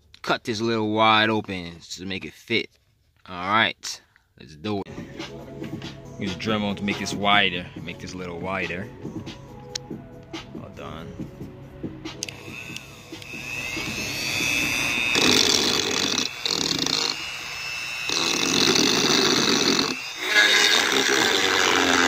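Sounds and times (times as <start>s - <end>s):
rotary tool grinding plastic: 12.2s - 22.0s.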